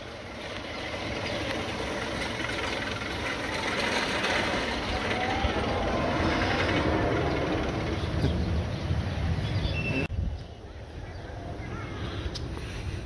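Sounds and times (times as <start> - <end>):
roller coaster rumbling on track: 0.0 - 12.3.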